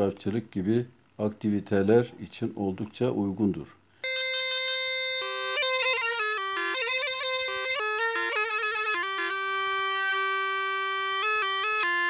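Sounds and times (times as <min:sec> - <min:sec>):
fast reedy wind instrument melody: 0:04.0 - 0:12.0.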